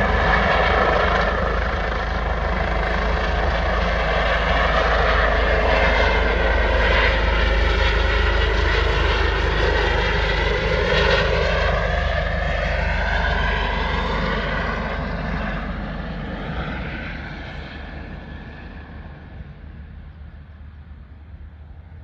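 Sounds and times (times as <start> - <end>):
helicopter rotor beat: 0.0 - 22.0
turbine whine: 0.0 - 22.0.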